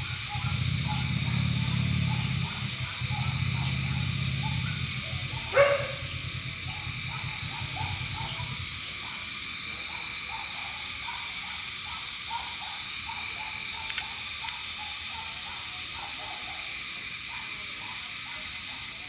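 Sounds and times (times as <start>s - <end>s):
rapid short calls: 0.0s - 17.3s
steady hiss: 0.0s - 19.0s
dog barking sharply: 0.3s - 9.2s.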